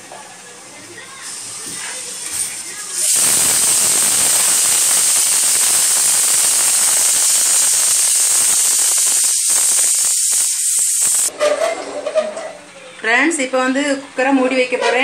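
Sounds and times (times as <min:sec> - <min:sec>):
gas stove hissing: 0:00.6 - 0:11.4.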